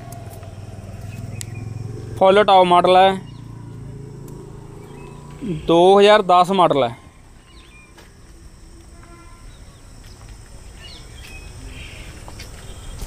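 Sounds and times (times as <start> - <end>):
low rumble: 0.0 - 5.7
bird chirps: 0.0 - 6.0, 7.3 - 8.0, 9.4 - 13.0
faint insect drone: 0.0 - 13.0.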